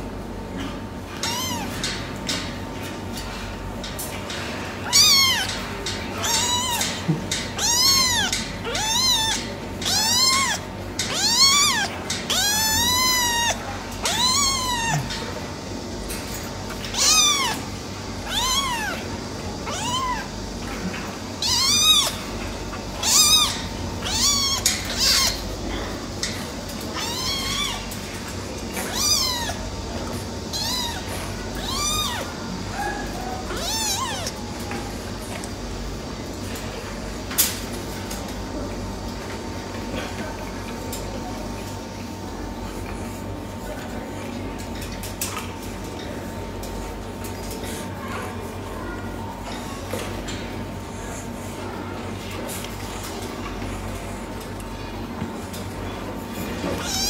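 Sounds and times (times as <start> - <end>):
kitten meowing: 1.2 - 1.8, 4.8 - 5.6, 6.2 - 15.2, 16.7 - 19.0, 19.6 - 20.3, 21.4 - 25.4, 27.0 - 27.9, 28.8 - 29.6, 30.5 - 34.4, 56.8 - 57.0.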